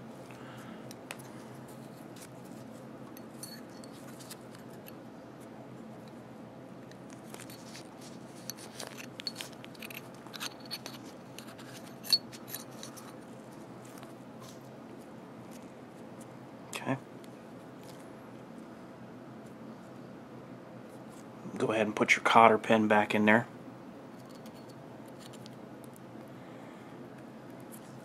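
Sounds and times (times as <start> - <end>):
faint steady hum: 0.0 - 28.0
metallic clicks and scrapes: 7.3 - 13.2.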